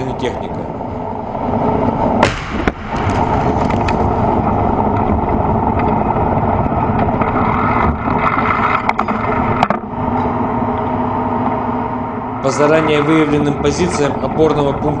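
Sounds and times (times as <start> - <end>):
tank engine running: 0.0 - 15.0
tank gun blast: 2.1 - 4.9
knocks and clatter: 2.2 - 10.3.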